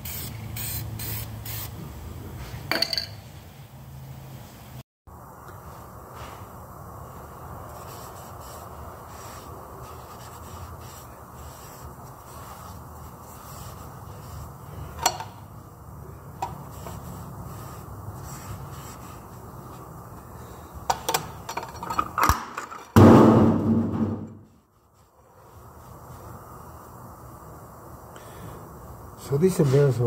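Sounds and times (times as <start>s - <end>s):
steady shop hum: 0.0s - 30.0s
rag wiping metal housing: 16.2s - 20.3s.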